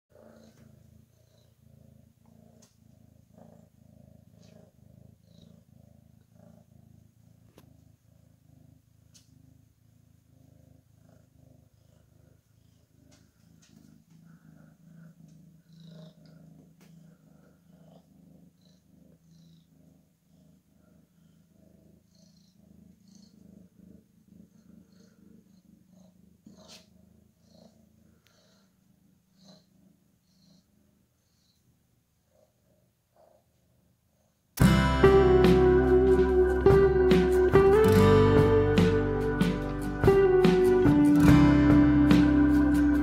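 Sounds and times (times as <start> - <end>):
cat purring: 0.1 - 43.0
faint clicks: 2.5 - 2.8, 9.1 - 9.3.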